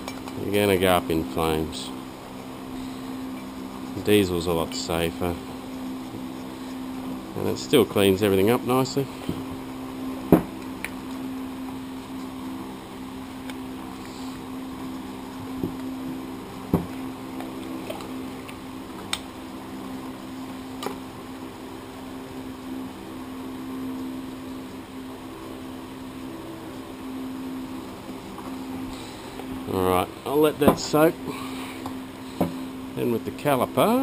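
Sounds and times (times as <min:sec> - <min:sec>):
mechanical hum: 0:00.0 - 0:34.0.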